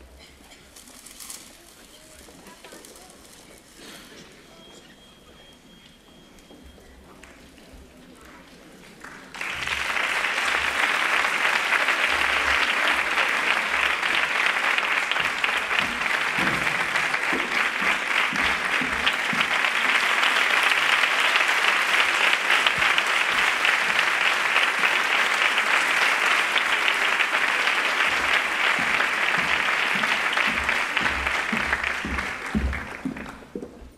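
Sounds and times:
audience applauding: 0:09.0 - 0:33.6.

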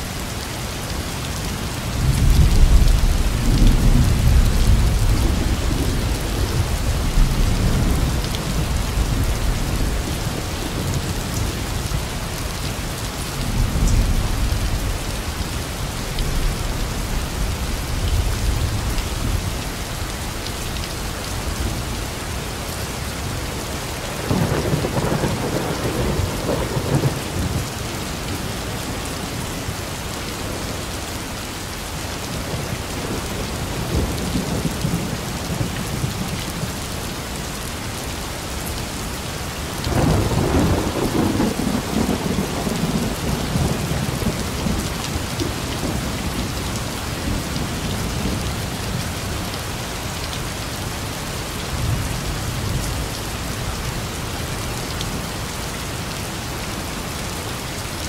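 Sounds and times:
heavy rain falling: 0:00.0 - 0:58.0
thunder rumbling: 0:24.2 - 0:27.7, 0:39.9 - 0:46.5.

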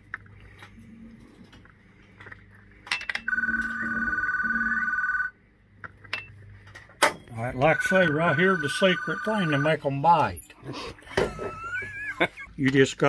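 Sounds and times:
shop background noise: 0:00.0 - 0:11.6
electronic ringing tone: 0:03.2 - 0:05.4, 0:07.4 - 0:10.0.

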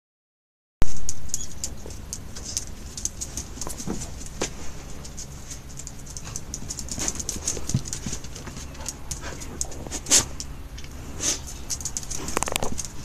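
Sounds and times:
dog claws clicking on stone: 0:05.6 - 0:10.9, 0:11.5 - 0:13.0.

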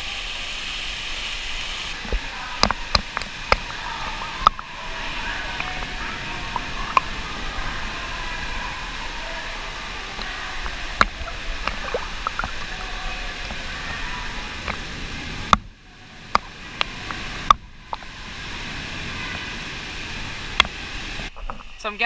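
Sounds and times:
water drips and plops: 0:01.9 - 0:19.6
water sloshing and splashing: 0:01.9 - 0:21.6.

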